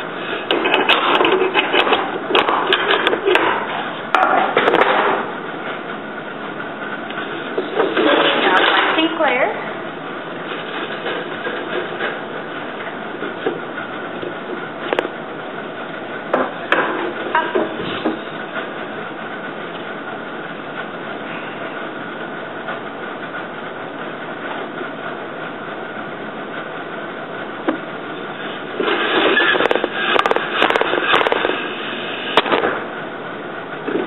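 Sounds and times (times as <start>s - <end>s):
loom clattering: 7.2s - 9.4s.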